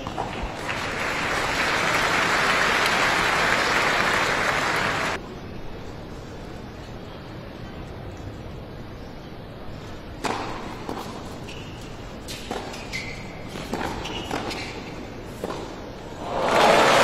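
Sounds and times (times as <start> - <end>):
ball bouncing on court: 0.0 - 0.5
tennis ball hit by racket: 10.2 - 11.1
shoe squeaks on court: 11.3 - 15.1.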